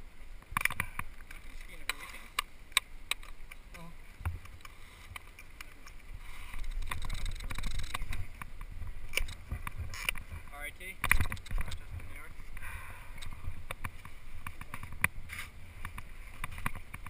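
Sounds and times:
wind rumbling on microphone: 0.0s - 17.0s
ski gear clicks and knocks: 0.4s - 17.0s.

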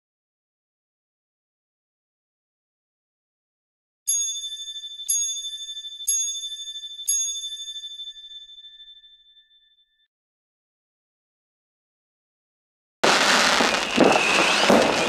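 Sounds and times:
high-pitched bell strokes: 4.1s - 10.1s.

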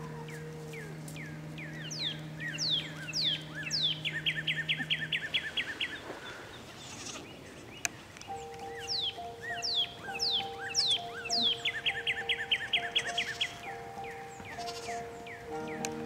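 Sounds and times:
soft background music: 0.0s - 6.0s, 8.2s - 16.0s
birds chirping: 0.0s - 16.0s.

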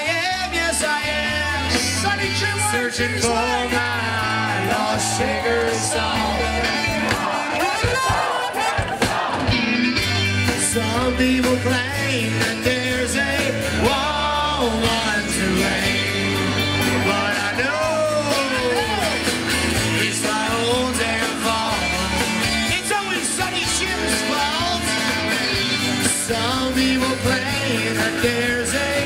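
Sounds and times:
rock band playing: 0.0s - 29.0s
sliding lead melody: 9.1s - 29.0s.

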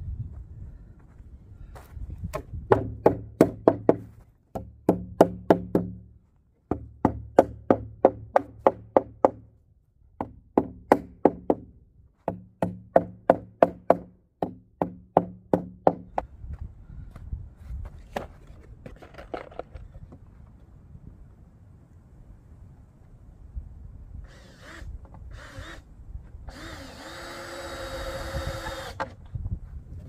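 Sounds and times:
hammer striking wooden planks: 2.3s - 6.1s, 6.7s - 9.5s, 10.2s - 16.2s.

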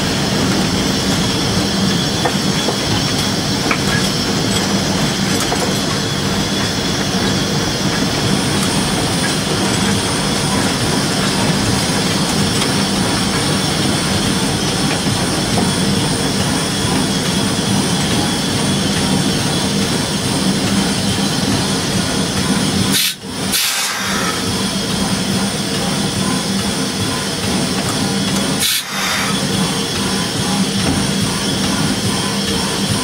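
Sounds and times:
steam locomotive running gear noise: 0.0s - 33.0s
steam hiss: 22.9s - 24.6s, 28.5s - 29.9s.

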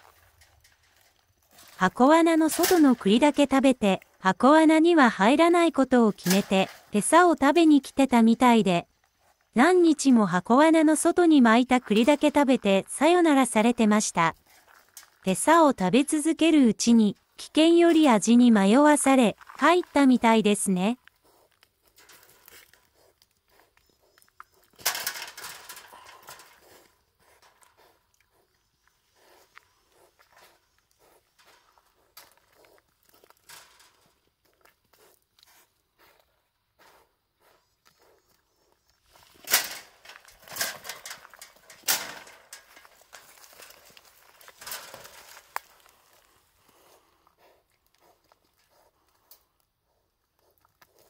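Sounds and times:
animal scuffling in metal trap: 0.0s - 3.7s, 6.1s - 7.4s, 21.8s - 22.9s, 24.6s - 27.8s, 30.3s - 34.2s, 39.1s - 45.9s
wild boar huffing: 21.1s - 33.4s, 34.4s - 39.3s, 44.6s - 51.0s
animal footsteps and rustling leaves: 37.8s - 47.1s.

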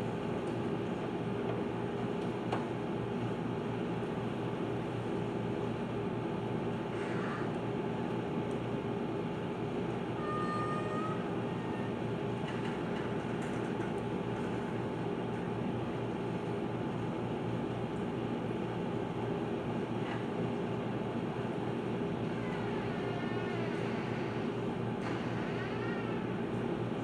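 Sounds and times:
faint high tone: 10.2s - 11.9s.

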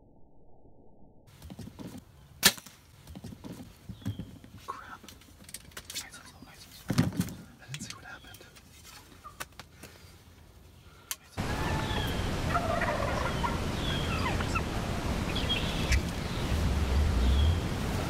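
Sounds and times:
turkeys gobbling and calling: 7.8s - 9.6s, 11.4s - 16.4s.

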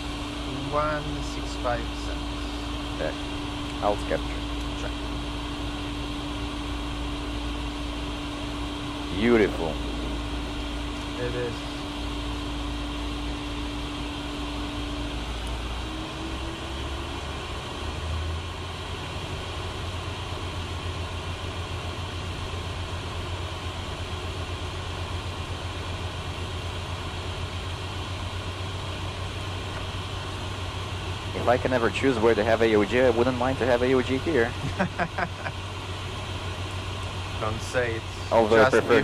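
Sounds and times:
airflow rushing over cockpit: 0.0s - 17.5s
jet engines humming: 0.0s - 39.0s.

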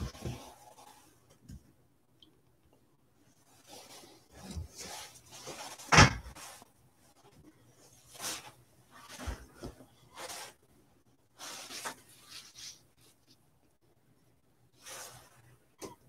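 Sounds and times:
rustling scrapes: 3.3s - 10.7s, 11.4s - 13.4s, 14.8s - 15.6s.

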